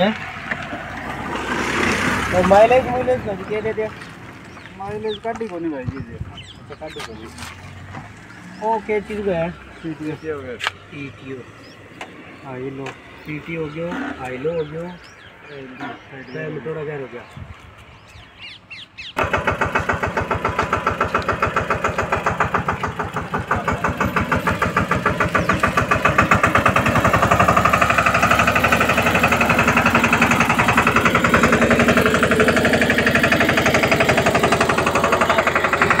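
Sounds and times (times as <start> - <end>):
tractor diesel engine running: 0.0 - 10.3, 19.0 - 36.0.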